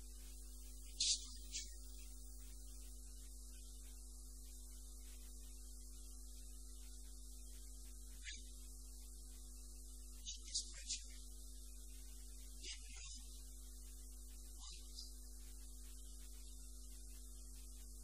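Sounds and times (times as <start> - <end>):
electrical mains hum: 0.0 - 18.0
faint hiss: 0.0 - 18.0.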